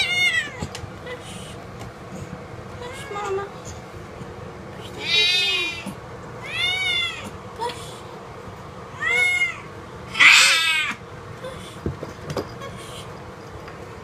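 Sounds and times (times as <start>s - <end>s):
cat meowing: 0.0s - 0.7s, 5.0s - 7.4s, 9.0s - 11.0s.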